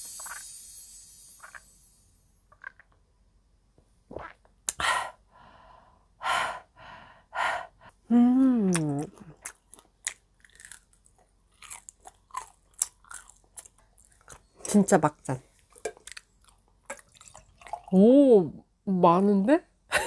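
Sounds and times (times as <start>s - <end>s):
woman saying aah: 8.1s - 9.2s
chewing sounds: 8.7s - 14.8s, 15.5s - 17.9s.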